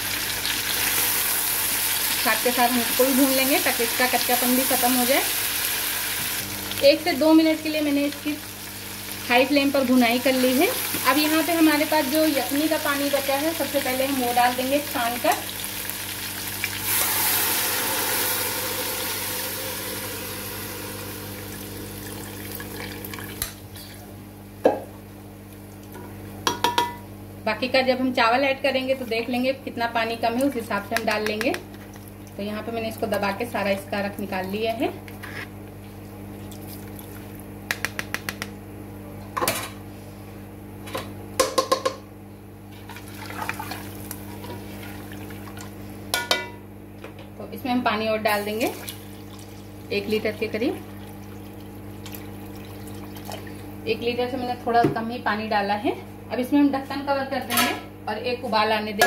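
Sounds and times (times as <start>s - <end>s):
stock pouring and sizzling: 14.8s - 23.5s, 48.3s - 49.9s, 50.8s - 53.7s.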